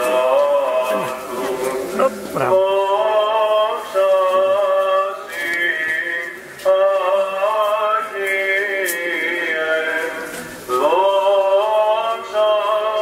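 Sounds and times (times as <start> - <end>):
men chanting: 0.0 - 5.3.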